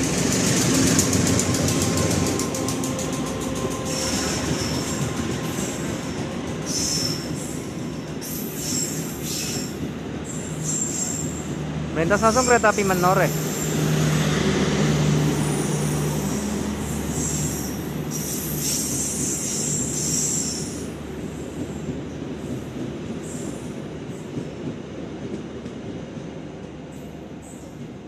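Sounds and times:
train wheels rumbling on rail: 0:00.0 - 0:28.0
high-pitched wheel squeal: 0:10.4 - 0:11.4, 0:17.1 - 0:20.8.

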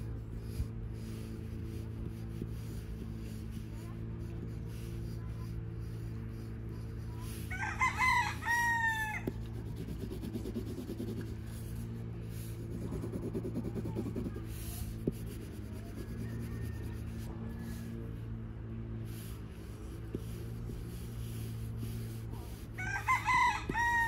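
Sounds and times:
pencil hatching on paper: 0:00.0 - 0:24.0
steady low hum: 0:00.0 - 0:24.0
rooster crowing: 0:07.5 - 0:09.4, 0:16.0 - 0:17.9, 0:22.8 - 0:24.0.

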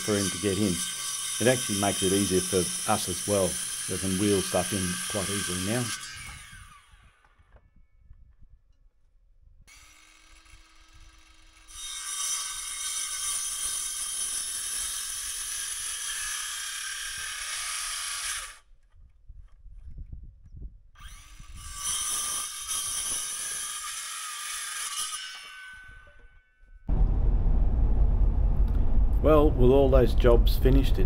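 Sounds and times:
power saw cutting timber: 0:00.0 - 0:07.5, 0:09.7 - 0:18.7, 0:21.0 - 0:26.5.

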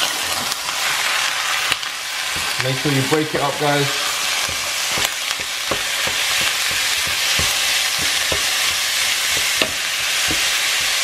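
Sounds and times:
meat sizzling in a pan: 0:00.0 - 0:11.0
utensil scraping a pan: 0:02.3 - 0:11.0.

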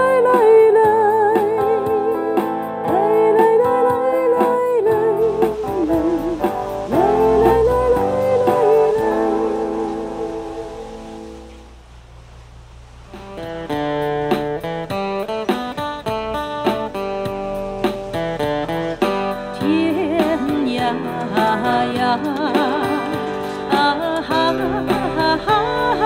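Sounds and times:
acoustic guitar strumming: 0:00.0 - 0:26.0
melody line with vibrato: 0:05.0 - 0:11.7.

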